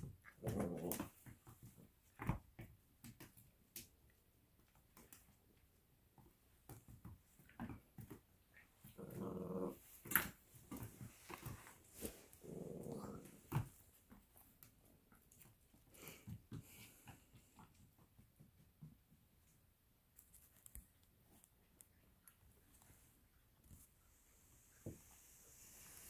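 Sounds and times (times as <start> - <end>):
dog play-growling: 0.0 - 2.4, 7.5 - 14.4.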